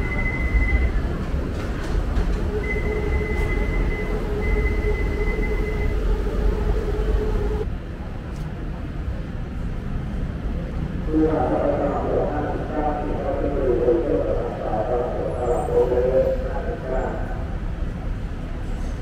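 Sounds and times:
low mechanical rumble: 0.0s - 7.8s
high steady whine: 2.5s - 7.7s
lower steady whine: 2.5s - 7.7s.

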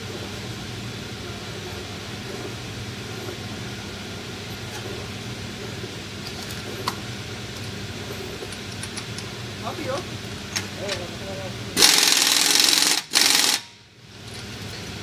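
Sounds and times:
workshop mechanical hum: 0.0s - 15.0s.

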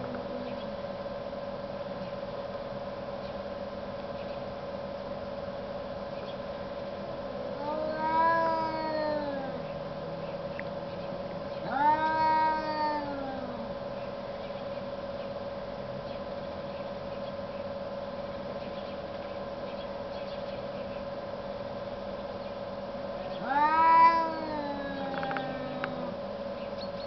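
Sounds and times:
steady hum: 0.0s - 27.0s
cat threat yowl: 7.6s - 9.6s, 11.6s - 13.7s, 23.4s - 26.2s.

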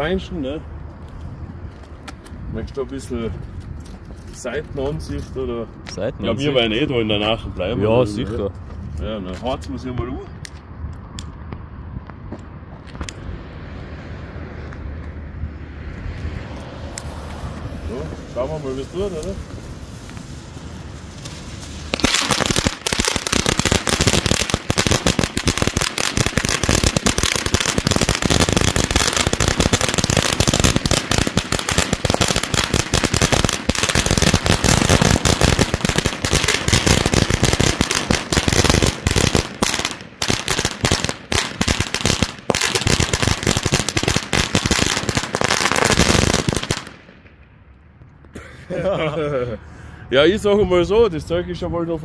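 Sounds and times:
firecracker string crackling: 16.5s - 48.3s.

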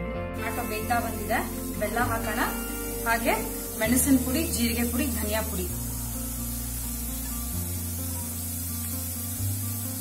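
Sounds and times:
background music with bass line: 0.0s - 10.0s
food frying in a pot: 0.4s - 10.0s.

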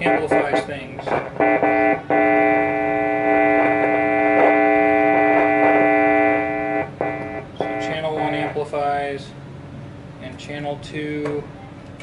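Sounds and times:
electric guitar chord ringing: 1.4s - 8.3s.

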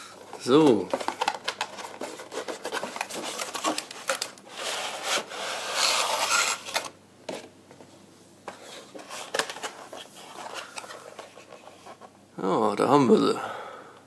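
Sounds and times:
cardboard tray scraping: 4.5s - 6.9s.

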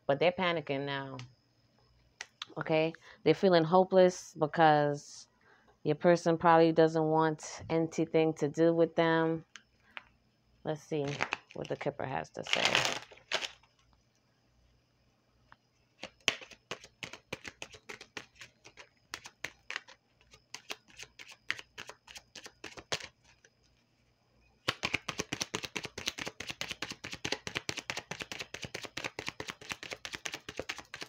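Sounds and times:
cards being shuffled: 16.0s - 23.5s, 24.7s - 31.0s.

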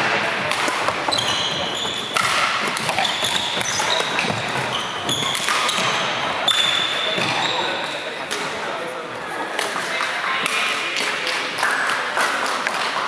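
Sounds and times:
hubbub of busy sports hall: 0.0s - 13.0s
shoes squeaking on wooden floor: 1.0s - 7.8s.

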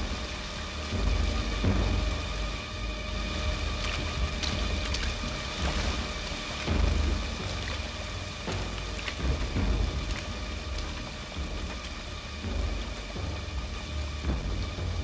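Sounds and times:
steady rain on wet ground: 0.0s - 15.0s
low rumble of thunder: 3.3s - 15.0s.

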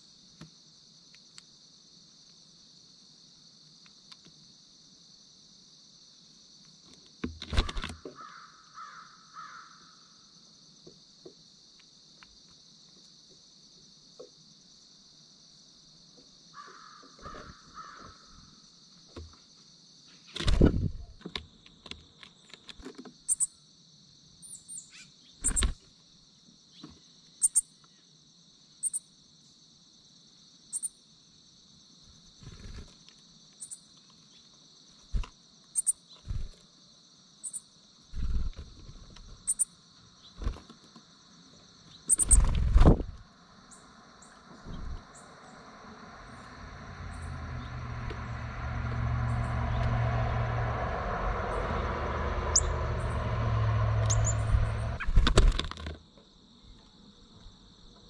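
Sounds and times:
insect chorus: 0.0s - 58.0s
loud low thumps: 46.7s - 55.0s.

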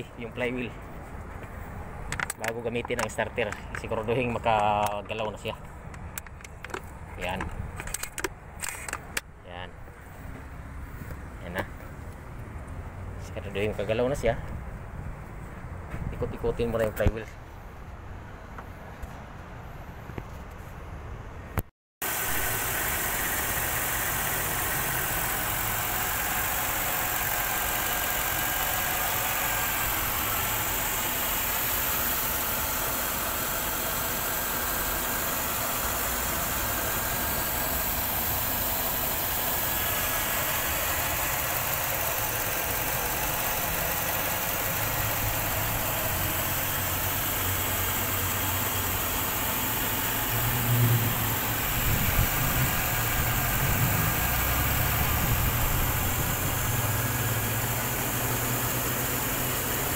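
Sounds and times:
car engine idling: 22.0s - 59.9s.

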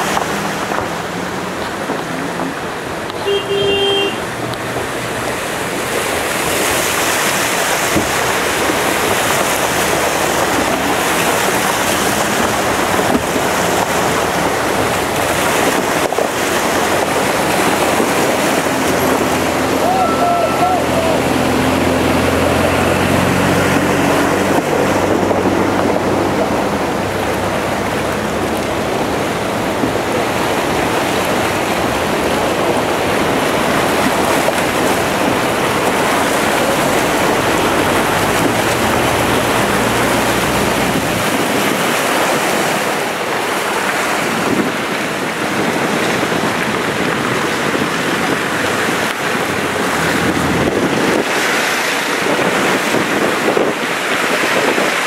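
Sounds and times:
cars driving through water: 0.0s - 55.0s
floodwater rushing down street: 0.0s - 55.0s
vehicle engines: 0.0s - 55.0s.

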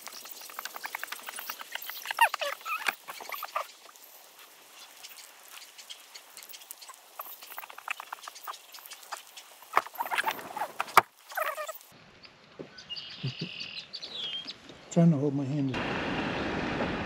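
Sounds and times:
grass fire crackling: 0.0s - 12.0s.

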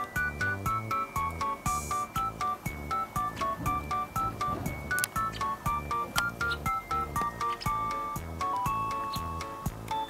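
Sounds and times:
plucky keyboard notes: 0.0s - 10.0s.

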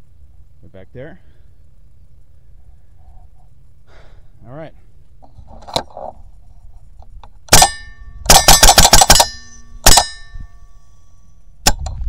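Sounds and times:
air rifle shots: 7.5s - 10.4s
metallic ring of target: 7.5s - 12.0s.

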